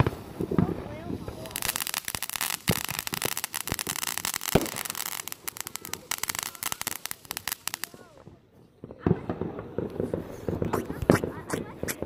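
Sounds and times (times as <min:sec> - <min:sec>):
firework crackling: 0:00.0 - 0:12.0
louder firework pops: 0:01.4 - 0:08.0.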